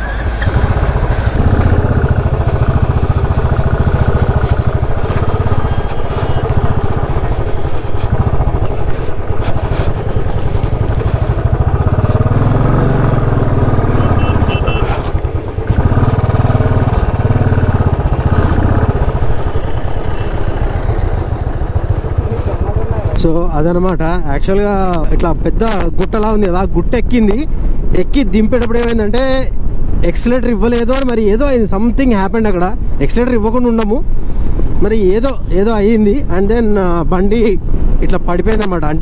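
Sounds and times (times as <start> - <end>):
motorcycle engine pulsing: 0.0 - 23.3.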